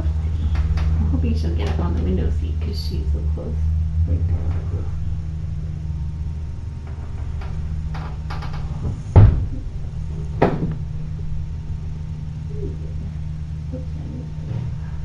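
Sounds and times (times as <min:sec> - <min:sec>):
steady low hum: 0:00.0 - 0:15.0
heavy thump: 0:06.8 - 0:11.5.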